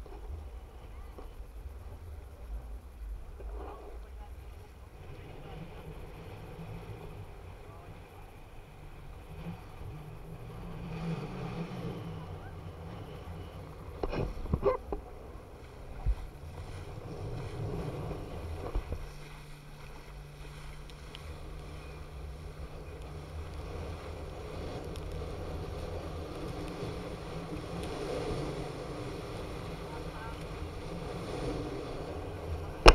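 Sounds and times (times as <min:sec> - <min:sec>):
steady low hum: 0:00.0 - 0:32.9
wind buffeting microphone: 0:00.0 - 0:32.9
water rushing and spraying: 0:04.0 - 0:32.9.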